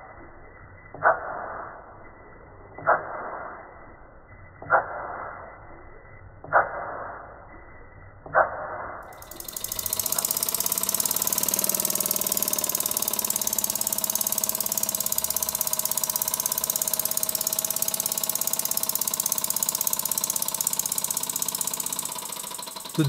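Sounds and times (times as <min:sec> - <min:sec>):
toy steam engine exhaust beats: 0:09.1 - 0:23.0.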